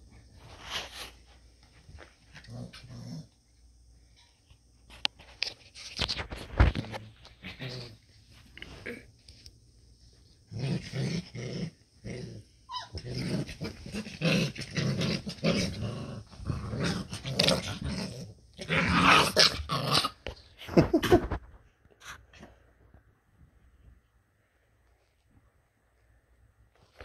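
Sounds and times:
puppies growling: 2.3 - 3.4, 6.7 - 9.1, 10.5 - 20.4.

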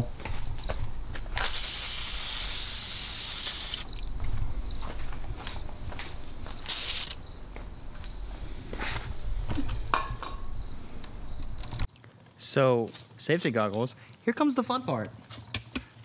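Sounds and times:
insects chirping: 0.0 - 16.0
aerosol can spraying: 1.4 - 3.9, 6.7 - 7.2.

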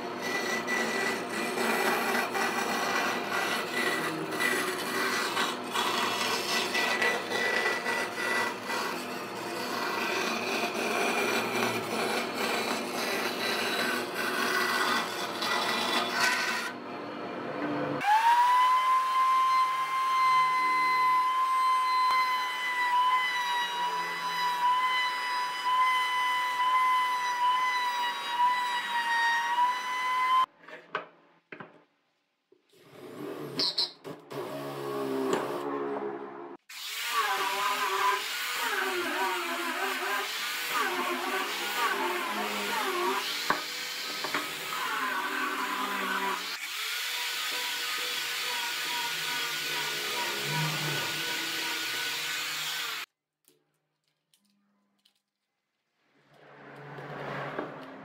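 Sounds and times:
angle grinder sanding wood: 36.7 - 53.1
cordless drill boring into wood: 36.7 - 53.1
router motor whining: 36.8 - 53.1.

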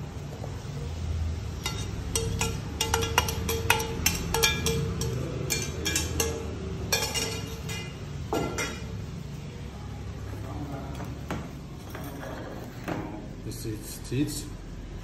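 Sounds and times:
metal kitchenware clinking: 1.6 - 9.0.

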